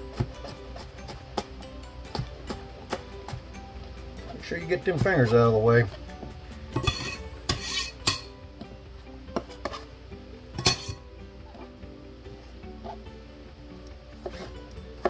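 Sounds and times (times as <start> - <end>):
knife scraping cutting board: 6.8 - 8.3, 9.4 - 9.9, 14.2 - 14.6.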